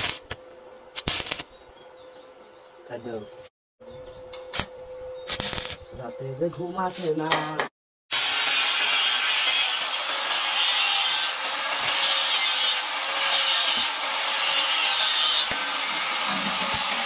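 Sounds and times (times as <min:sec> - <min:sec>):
arc welding crackling sizzle: 0:00.0 - 0:01.7, 0:04.5 - 0:06.0, 0:08.1 - 0:17.0.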